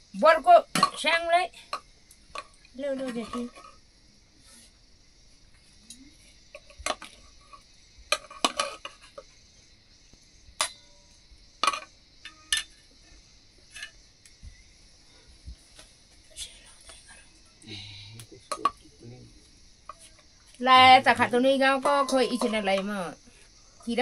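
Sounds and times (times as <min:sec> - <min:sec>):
steady high-pitched hiss: 0:00.0 - 0:24.0
metal dishes clinking: 0:10.6 - 0:11.0, 0:11.6 - 0:12.8, 0:18.5 - 0:18.8, 0:21.8 - 0:22.9.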